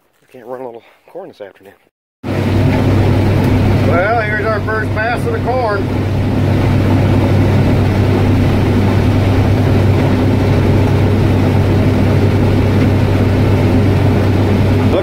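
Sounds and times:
combine harvester droning: 0:02.2 - 0:15.0.

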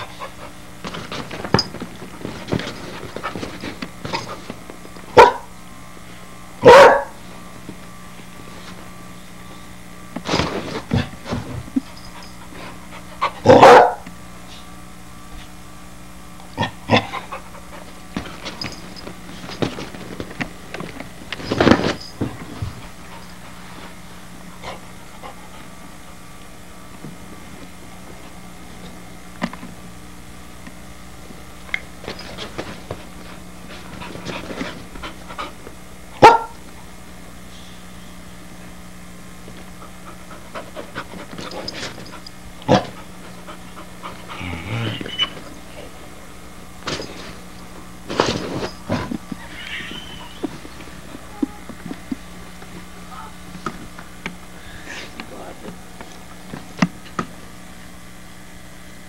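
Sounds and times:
puppy scrambling on couch: 0:00.2 - 0:04.9, 0:10.2 - 0:12.7, 0:17.3 - 0:23.9, 0:32.0 - 0:35.6, 0:39.5 - 0:45.6, 0:46.8 - 0:52.1
puppy panting: 0:42.9 - 0:44.5.

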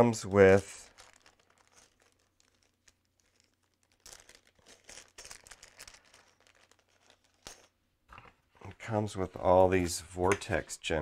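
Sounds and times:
plastic packaging crinkling: 0:00.0 - 0:08.4.

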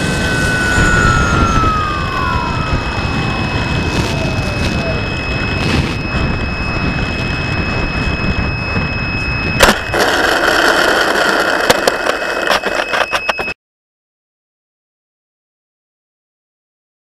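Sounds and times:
wind rush: 0:00.0 - 0:12.4
steady high whine: 0:00.0 - 0:13.6
scraping and rattling on gravel: 0:03.9 - 0:04.8, 0:05.6 - 0:06.2, 0:09.6 - 0:13.5.

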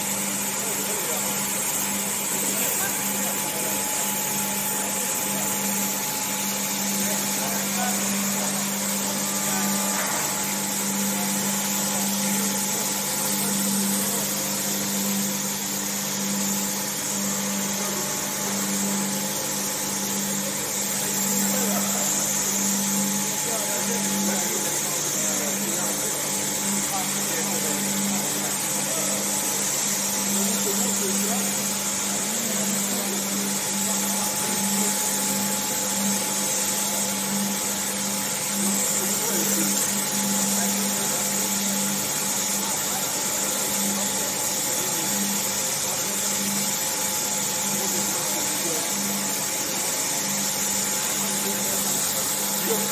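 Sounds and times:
foundry machinery humming: 0:00.0 - 0:52.9
spray gun spraying: 0:00.0 - 0:52.9.

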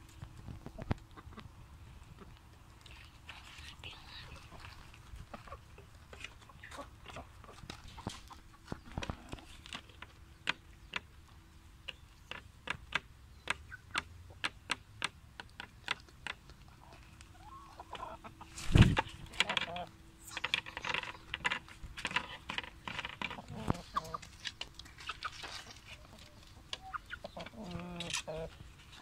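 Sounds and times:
rooster clucking: 0:16.8 - 0:20.7, 0:23.2 - 0:24.3, 0:25.0 - 0:28.6.

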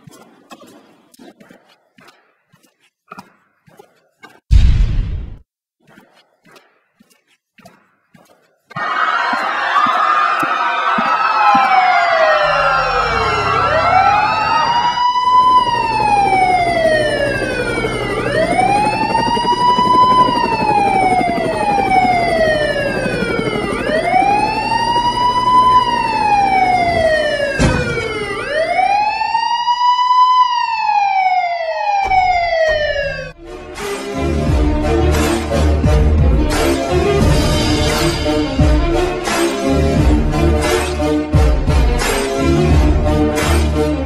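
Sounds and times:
police siren wailing: 0:08.8 - 0:33.4
second siren: 0:10.8 - 0:33.4.

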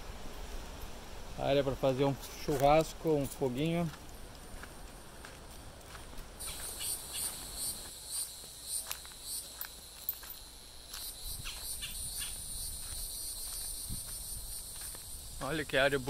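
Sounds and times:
insects chirring: 0:04.6 - 0:16.0.

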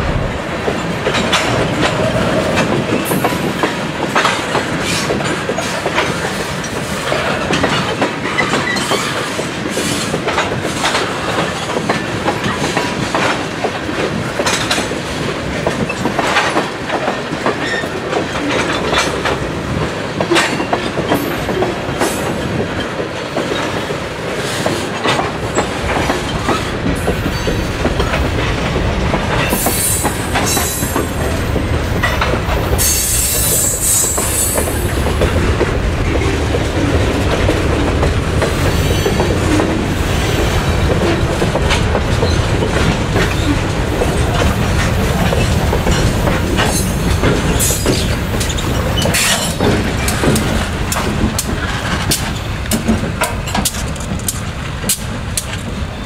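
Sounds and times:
train wheels clicking and rumbling: 0:00.0 - 0:56.0.

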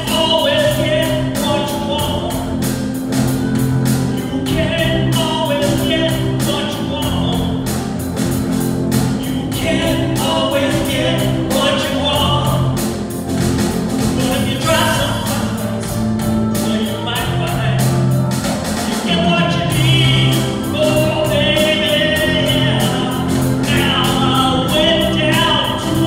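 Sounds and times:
live band with steady beat: 0:00.0 - 0:26.0
church choir singing: 0:09.2 - 0:12.7.

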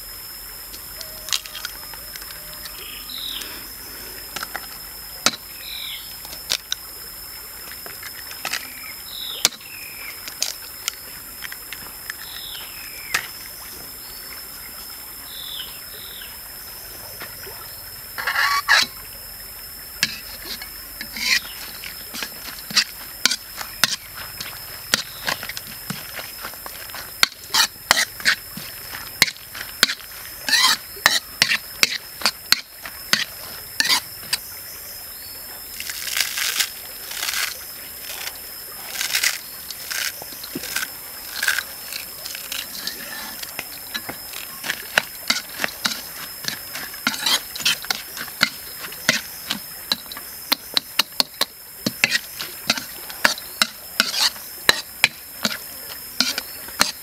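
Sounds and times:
metal ladle scraping wok: 0:18.2 - 0:19.0, 0:20.0 - 0:34.4, 0:40.7 - 0:55.6, 0:56.2 - 0:57.0
frying hiss: 0:35.8 - 0:57.0.

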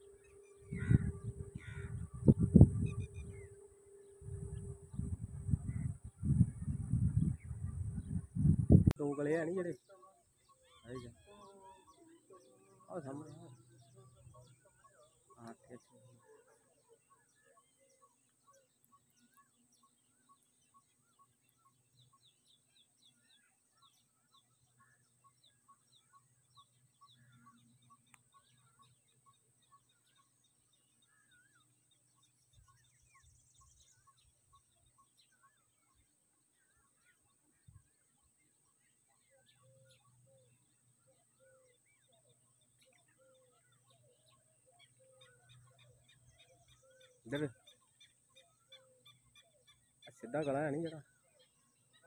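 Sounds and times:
low repeated bird note: 0:00.0 - 0:10.0
faint birds calling: 0:00.0 - 0:52.0
faint click: 0:28.0 - 0:28.3.

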